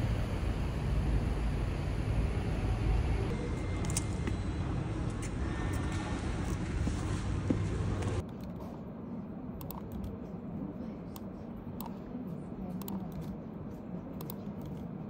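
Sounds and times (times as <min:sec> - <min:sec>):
low room hum: 0:00.0 - 0:15.0
keyboard and mouse clicks: 0:09.6 - 0:10.1.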